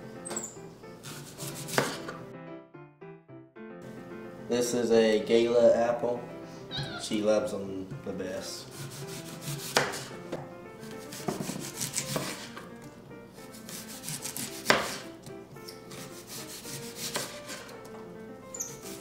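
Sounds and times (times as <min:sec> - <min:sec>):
knife scraping through apple: 0:01.0 - 0:02.1, 0:08.7 - 0:10.2, 0:10.8 - 0:12.7, 0:13.4 - 0:15.1, 0:15.7 - 0:17.8, 0:18.6 - 0:19.0
knife knocking on wooden board: 0:11.1 - 0:12.4.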